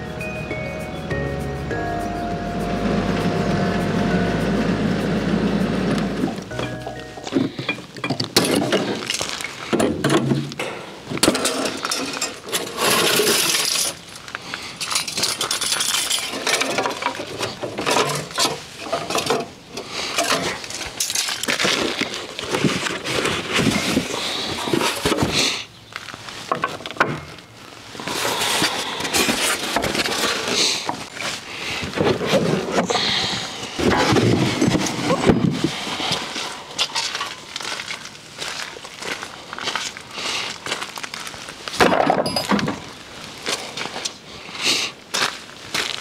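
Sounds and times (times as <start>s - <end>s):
metal fittings clinking: 42.3s - 42.6s.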